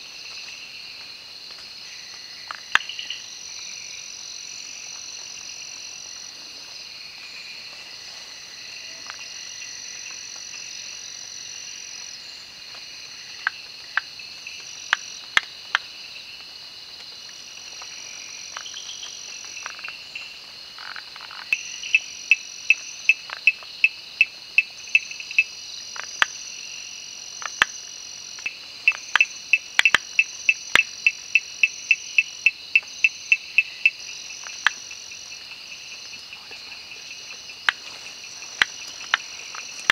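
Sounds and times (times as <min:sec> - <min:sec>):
crickets and insects trilling: 0:00.0 - 0:39.9
frogs clicking: 0:00.2 - 0:03.4, 0:08.5 - 0:12.2, 0:13.1 - 0:16.0, 0:17.0 - 0:39.9.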